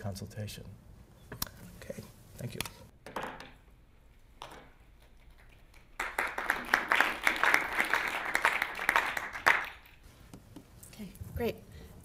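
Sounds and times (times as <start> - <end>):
audience applauding: 5.4 - 10.0.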